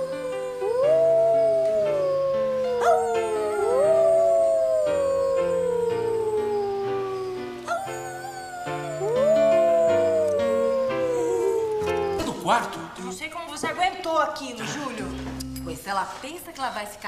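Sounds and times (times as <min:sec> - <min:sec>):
dog howling: 0:00.0 - 0:12.7
background music of held notes: 0:00.0 - 0:16.0.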